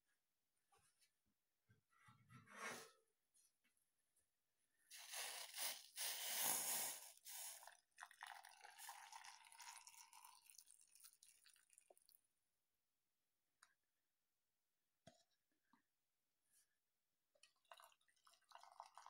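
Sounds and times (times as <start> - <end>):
liquid sloshing and pouring: 4.9 - 12.2, 17.4 - 19.0.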